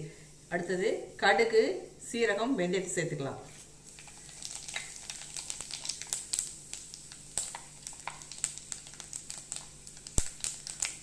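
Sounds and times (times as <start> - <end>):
seeds sizzling in hot oil: 3.6 - 11.0
mustard seeds popping: 3.9 - 11.0.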